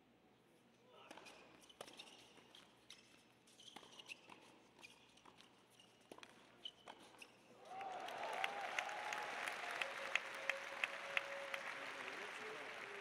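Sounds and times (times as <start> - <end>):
crowd applause: 7.7 - 13.0.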